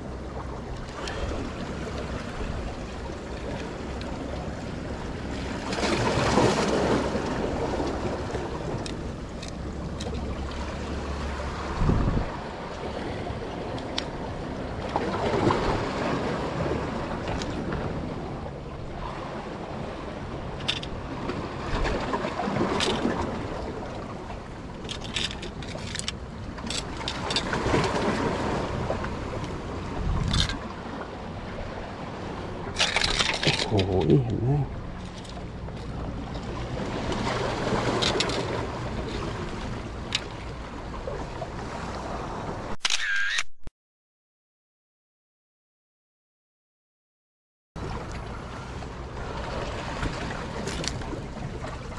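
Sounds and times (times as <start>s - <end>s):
surf washing on shore: 0.0s - 42.8s, 47.8s - 51.9s
wind buffeting microphone: 11.0s - 24.3s, 26.4s - 42.6s
sharp clicks: 42.8s - 43.7s.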